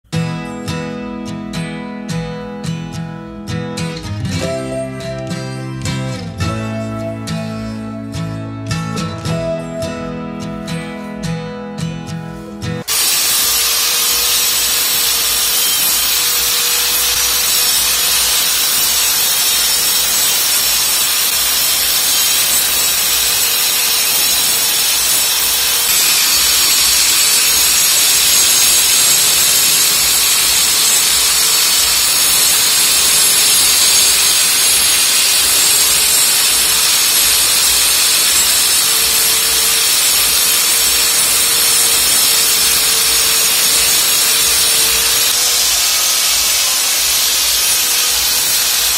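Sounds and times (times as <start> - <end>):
angle grinder cutting plaster: 12.7 - 48.9.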